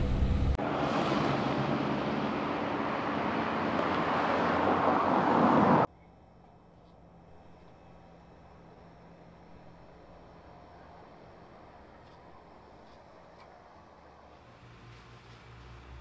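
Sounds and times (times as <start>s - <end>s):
car rumble: 0.0s - 5.9s
tyre and road noise: 0.0s - 16.0s.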